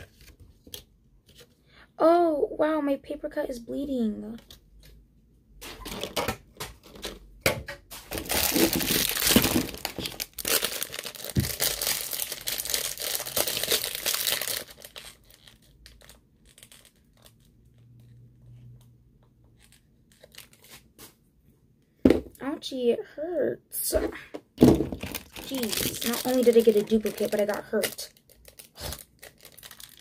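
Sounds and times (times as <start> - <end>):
plastic wrapper crinkling and tearing: 8.0 - 17.9, 19.5 - 20.9, 24.7 - 30.0.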